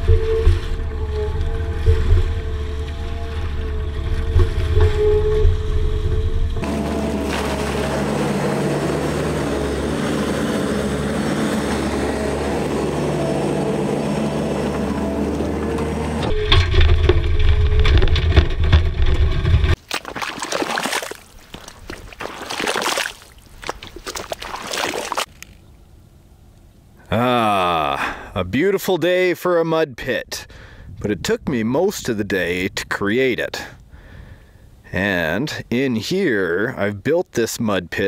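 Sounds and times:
skid steer engine running: 0.0 - 19.8
water and mud sloshing: 6.6 - 10.5, 16.6 - 25.6.

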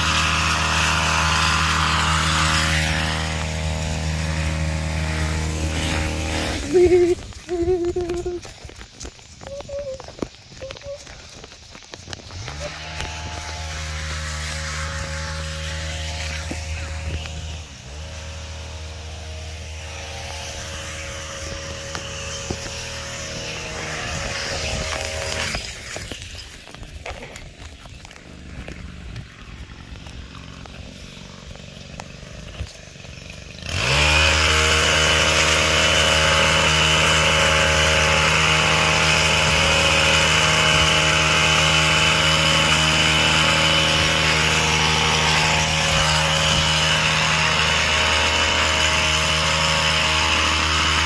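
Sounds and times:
small gas engine running: 0.0 - 51.0
person humming: 6.3 - 11.4.

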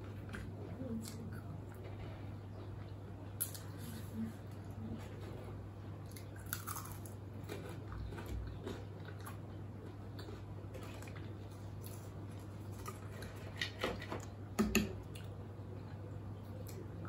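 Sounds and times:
steady low hum: 0.0 - 17.0
crunchy chewing: 6.0 - 13.8.

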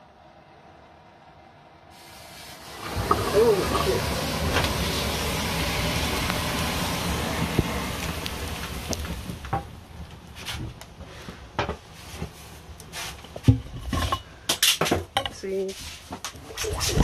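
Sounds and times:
rushing hiss of flaring powder: 1.9 - 13.4
flames burning: 1.9 - 14.8.

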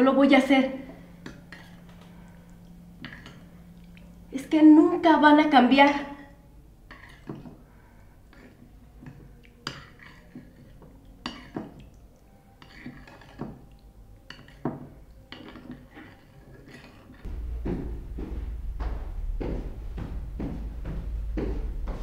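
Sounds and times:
cutlery and dishes clinking: 6.9 - 7.6, 8.3 - 11.9, 12.6 - 17.2.

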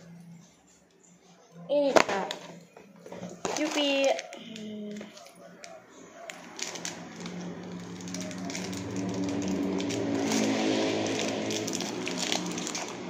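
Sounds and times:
plastic wrapper crinkling: 3.2 - 13.0
passing vehicle engine hum: 5.7 - 13.0.

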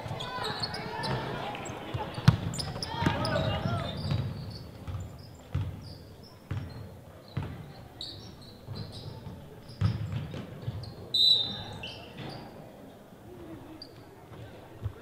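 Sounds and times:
sneakers squeaking on court: 0.0 - 12.6
basketball bouncing on hardwood: 4.0 - 5.8, 9.8 - 10.8.

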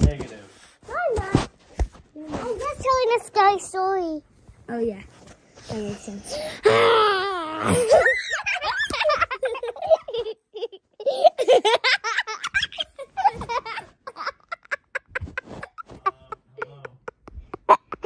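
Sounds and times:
young child laughing: 7.6 - 18.0.

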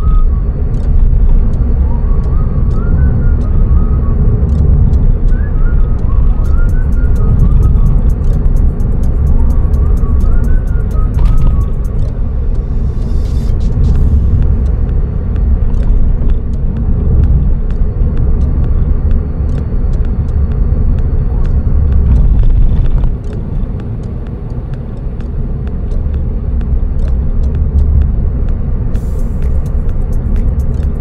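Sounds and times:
car engine and tyres rumbling: 0.0 - 31.0.

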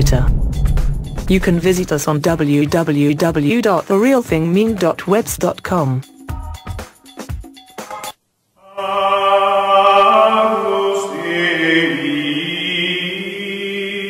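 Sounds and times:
low held note: 0.0 - 2.1
choir chanting held chords: 8.6 - 14.0.

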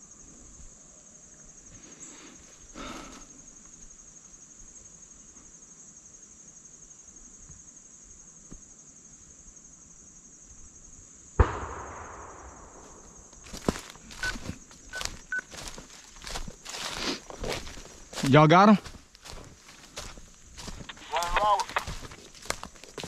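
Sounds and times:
high-pitched insect trill: 0.0 - 23.0
gunshot echoing: 11.4 - 13.5.

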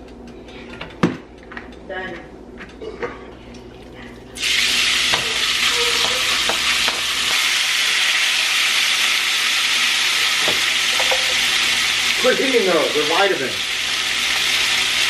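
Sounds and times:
chicken sizzling in skillet: 4.4 - 15.0.

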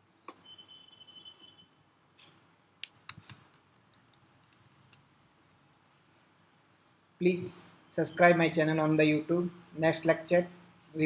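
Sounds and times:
keyboard and mouse clicks: 0.3 - 1.2, 2.1 - 6.0.

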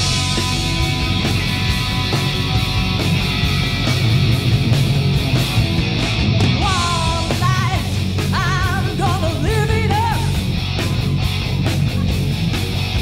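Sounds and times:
hard rock band playing: 0.0 - 13.0.

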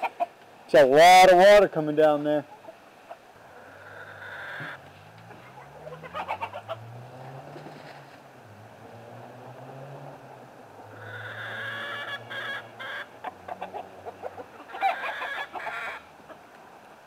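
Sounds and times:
chickens clucking: 0.0 - 0.5, 2.3 - 8.1, 10.1 - 16.7.

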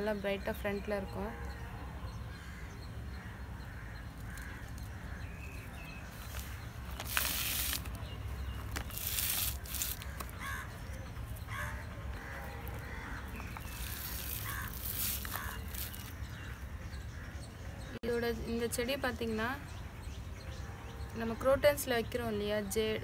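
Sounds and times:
bird harsh calls: 1.3 - 18.0
plastic bag and leaves rustling: 6.0 - 10.6, 12.7 - 16.5.

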